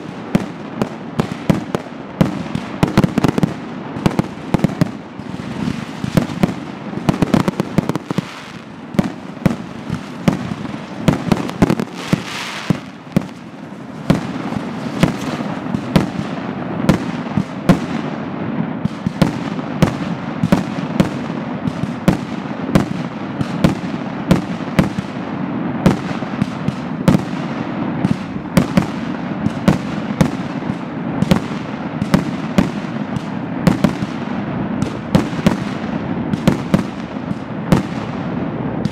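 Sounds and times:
fireworks crackle: 0.0s - 38.9s
firework shells bursting: 1.0s - 18.0s.

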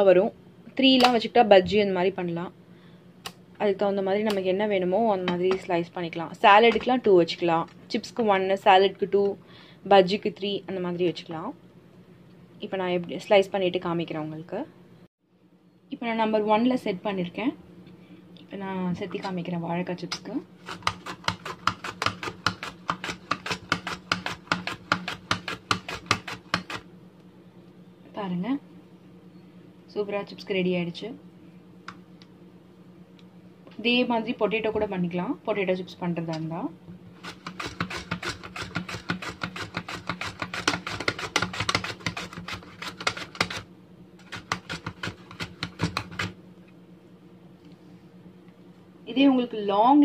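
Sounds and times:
mandoline slicer scraping: 20.6s - 26.8s, 37.2s - 43.6s, 44.2s - 46.4s.

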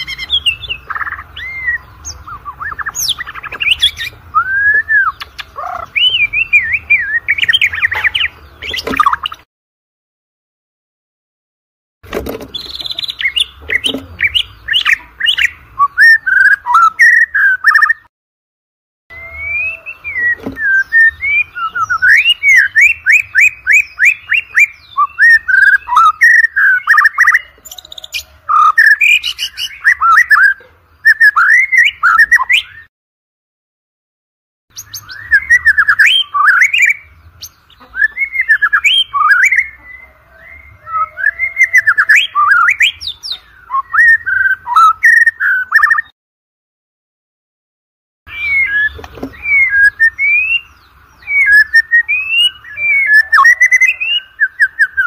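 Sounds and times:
bird singing whistled phrases: 0.0s - 9.4s, 12.5s - 18.1s, 19.1s - 32.9s, 34.8s - 46.1s, 48.3s - 55.0s.

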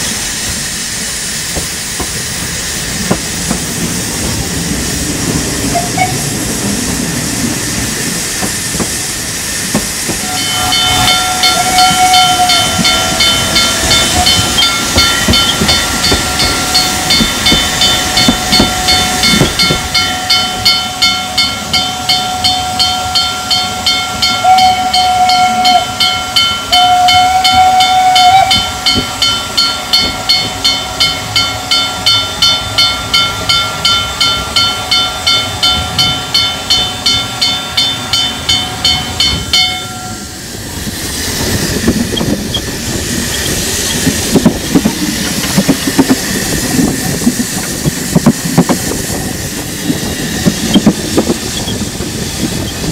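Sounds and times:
steady steam hiss: 0.0s - 22.3s, 40.1s - 52.9s
steam locomotive exhaust chuffs: 0.0s - 52.9s
whistling tone of escaping steam: 5.6s - 20.9s, 23.7s - 29.6s, 39.9s - 52.9s.

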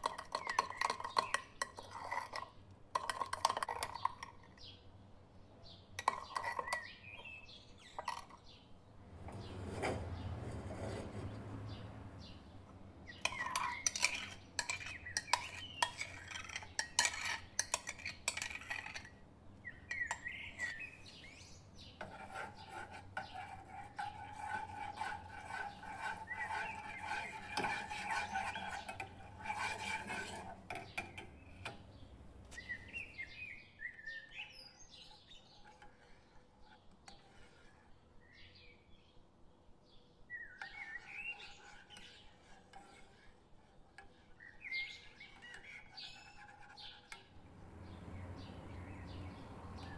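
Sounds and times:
birds chirping: 0.0s - 2.4s, 5.5s - 10.4s, 11.2s - 35.8s, 40.3s - 42.4s, 44.4s - 49.9s
metal spoon scraping saucepan: 0.0s - 4.7s, 6.0s - 8.5s, 9.2s - 12.4s, 13.0s - 33.4s, 34.5s - 38.0s, 40.6s - 49.9s.

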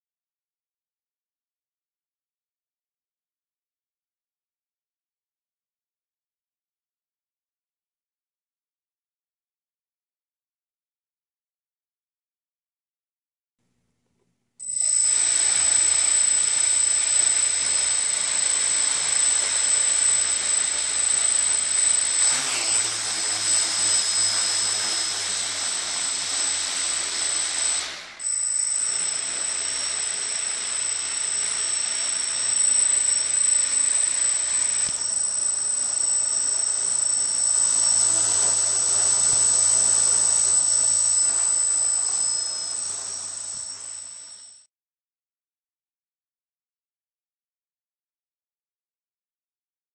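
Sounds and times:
quadcopter propellers whining: 14.6s - 44.7s.

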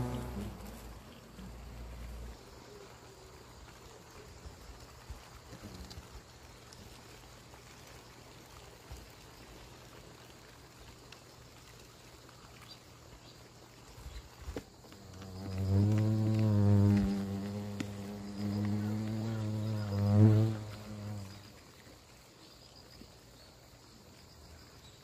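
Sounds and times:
hornets buzzing: 0.0s - 2.8s, 14.8s - 21.6s.

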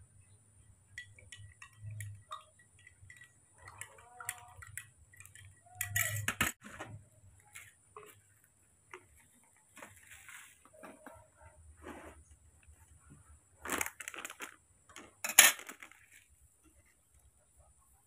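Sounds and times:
small clicks and ticks: 1.0s - 6.5s.

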